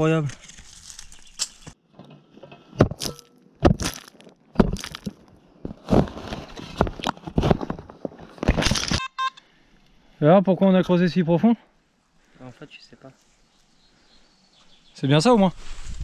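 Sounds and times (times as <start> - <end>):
spade crunching into soil: 0.0 - 1.8, 2.7 - 7.8.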